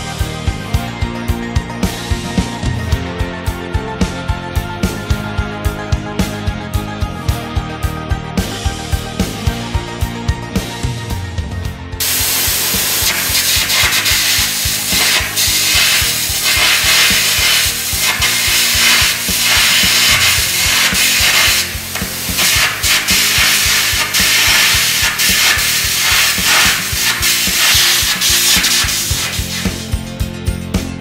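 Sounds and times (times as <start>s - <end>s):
electric arc crackling hiss: 12.0s - 29.9s
compressed air jet blowing: 12.0s - 30.0s.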